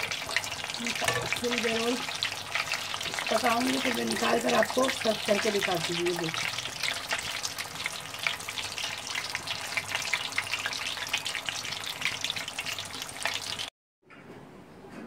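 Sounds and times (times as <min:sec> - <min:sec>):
oil sizzling and crackling: 0:00.0 - 0:13.7.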